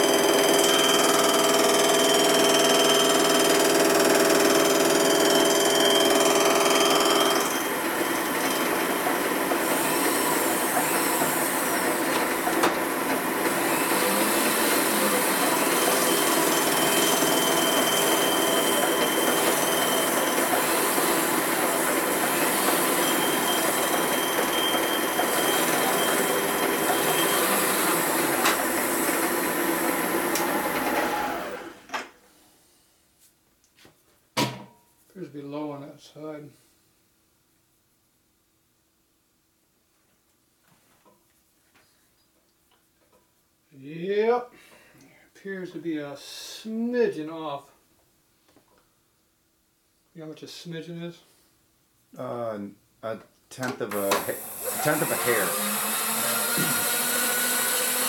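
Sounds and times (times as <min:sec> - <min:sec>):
machine tool cutting metal: 0:00.0 - 0:31.6, 0:54.0 - 0:58.0.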